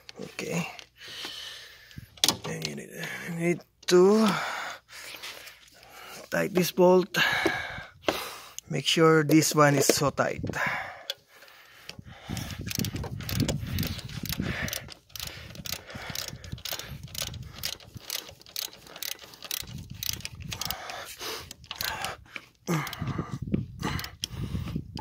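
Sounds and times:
ratchet wrench clicking: 0:11.9 - 0:23.2, 0:23.8 - 0:25.0.

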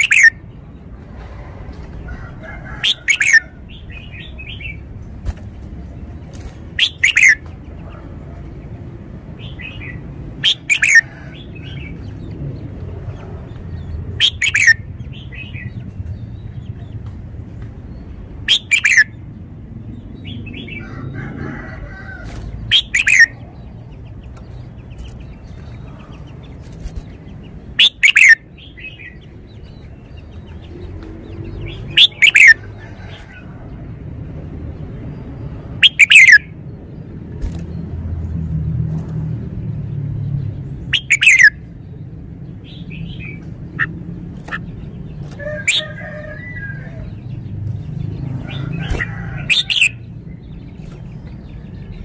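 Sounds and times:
bird whistling phrases: 0:00.0 - 0:00.4, 0:06.8 - 0:07.4, 0:10.4 - 0:11.1, 0:22.7 - 0:23.3, 0:27.8 - 0:28.4, 0:32.0 - 0:32.6, 0:35.8 - 0:36.4, 0:41.0 - 0:41.5.

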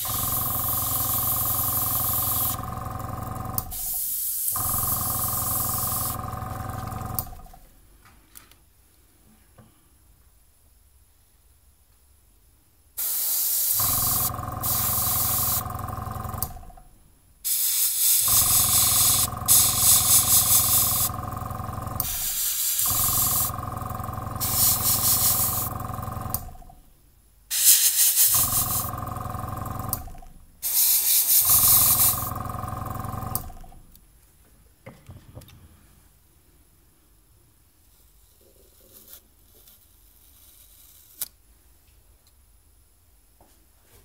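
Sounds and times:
airbrush spraying hiss: 0:00.0 - 0:02.6, 0:03.7 - 0:06.2, 0:13.0 - 0:15.6, 0:17.4 - 0:21.1, 0:22.0 - 0:23.5, 0:24.4 - 0:25.7, 0:27.5 - 0:28.9, 0:30.6 - 0:32.3
compressor motor humming: 0:00.0 - 0:07.6, 0:13.7 - 0:16.8, 0:18.2 - 0:26.7, 0:28.2 - 0:30.4, 0:31.1 - 0:33.8.

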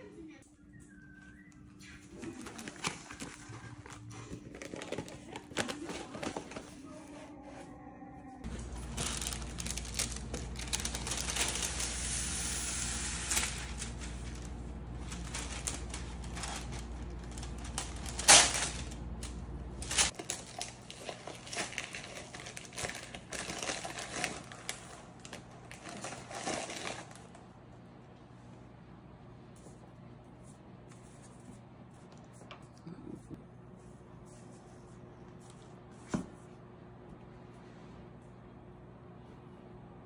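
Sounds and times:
parchment paper crinkling: 0:02.1 - 0:07.6, 0:08.4 - 0:27.4.

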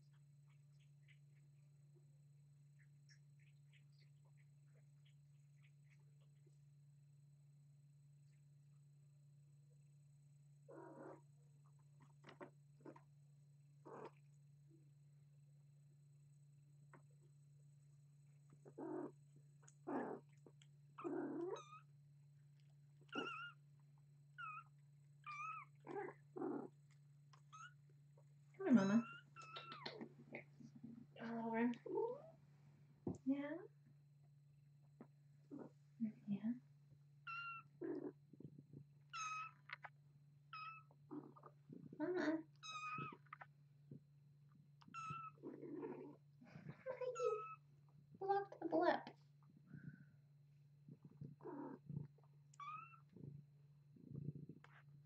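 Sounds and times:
faint steady hum: 0:00.0 - 0:55.0
soft cat sounds: 0:10.6 - 0:13.1, 0:13.7 - 0:15.0, 0:18.2 - 0:22.0, 0:22.6 - 0:23.6, 0:24.3 - 0:31.0, 0:31.7 - 0:32.4, 0:34.8 - 0:35.8, 0:37.2 - 0:55.0
kittens mewing: 0:23.1 - 0:23.6.

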